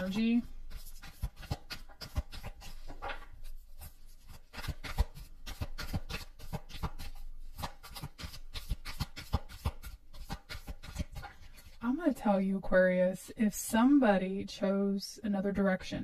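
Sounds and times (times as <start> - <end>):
cards tapping and rustling: 0.0 - 11.7.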